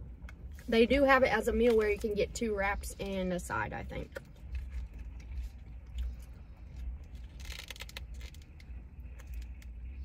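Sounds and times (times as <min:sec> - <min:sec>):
low car cabin hum: 0:00.0 - 0:10.0
paper food wrappers crinkling: 0:04.3 - 0:09.9.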